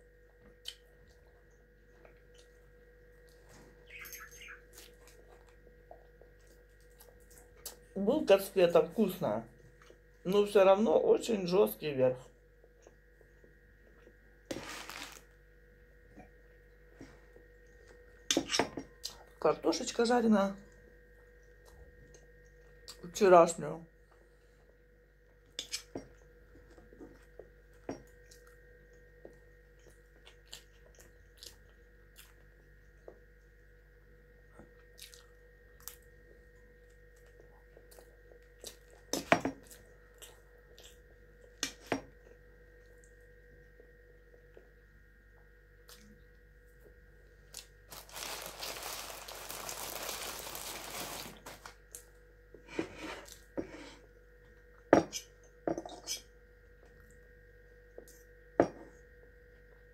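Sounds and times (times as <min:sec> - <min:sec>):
faint hum: 0:00.0 - 0:59.9
paper bag rustling: 0:14.5 - 0:15.3, 0:47.9 - 0:51.8
chewing: 0:34.6 - 0:36.1.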